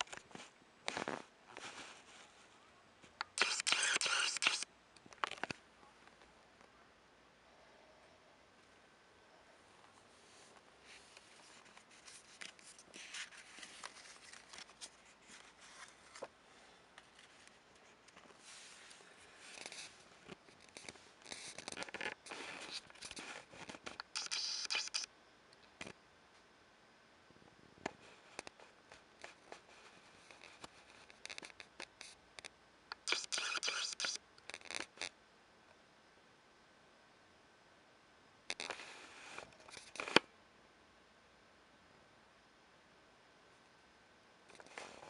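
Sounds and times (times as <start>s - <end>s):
paper rustling and scraping: 0.0s - 2.5s, 10.2s - 16.3s, 17.0s - 25.1s.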